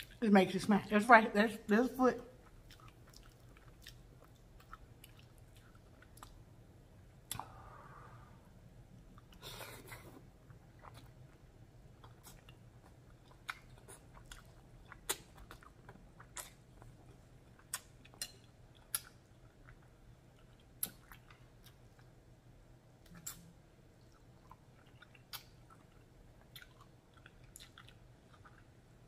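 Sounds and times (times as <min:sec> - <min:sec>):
wet chewing: 0:02.4 - 0:06.4, 0:09.2 - 0:22.1, 0:23.0 - 0:28.8.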